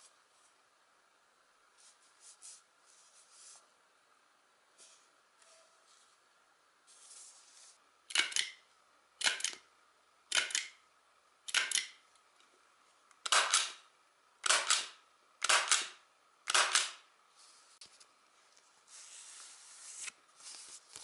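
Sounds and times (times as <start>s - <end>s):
stapler driving staples: 10.3s - 10.7s, 11.5s - 12.0s, 13.2s - 13.8s, 14.4s - 17.0s.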